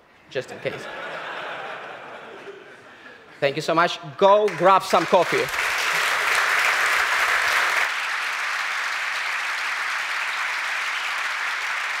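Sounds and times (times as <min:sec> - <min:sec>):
audience applauding: 0:04.5 - 0:12.0.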